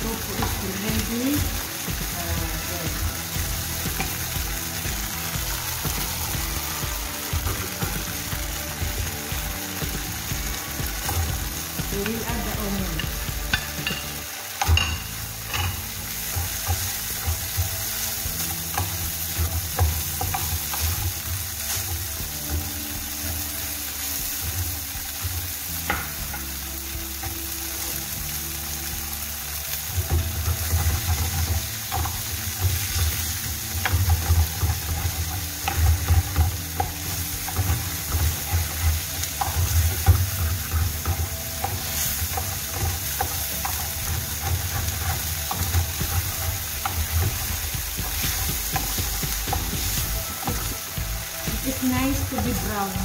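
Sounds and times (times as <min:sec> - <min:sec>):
tofu and onion sizzling in a pan: 0:00.0 - 0:53.0
wooden spoon scraping a pan: 0:10.0 - 0:23.4, 0:29.8 - 0:53.0.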